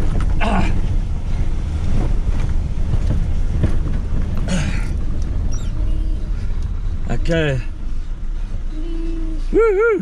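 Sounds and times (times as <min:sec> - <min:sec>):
truck engine and road rumble: 0:00.0 - 0:10.0.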